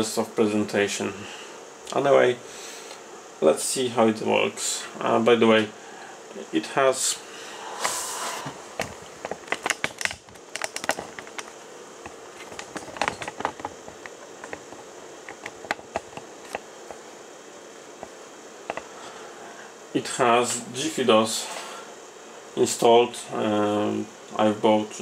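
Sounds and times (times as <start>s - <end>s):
brief hiss: 7.4s - 8.7s
equipment handling clicks: 8.8s - 16.7s.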